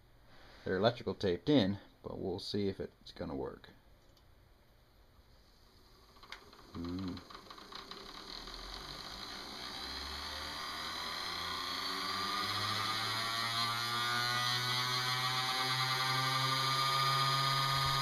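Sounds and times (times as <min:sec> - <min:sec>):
low hum: 0:05.4 - 0:18.0
electric motor whine rising: 0:05.7 - 0:18.0.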